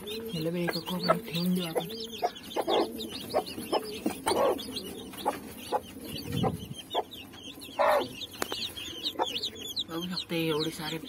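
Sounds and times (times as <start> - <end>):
chicks peeping: 0.0 - 11.0
hen clucking: 0.0 - 11.0.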